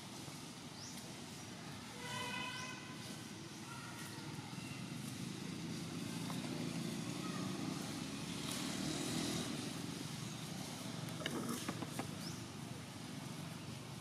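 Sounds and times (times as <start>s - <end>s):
passing vehicle engine rumble: 4.3s - 14.0s.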